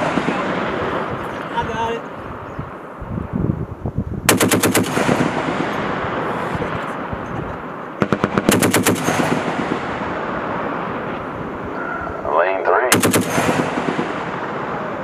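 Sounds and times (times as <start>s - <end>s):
rolling echo: 0.0s - 3.0s, 4.3s - 15.0s
machine gun bursts: 12.9s - 13.7s.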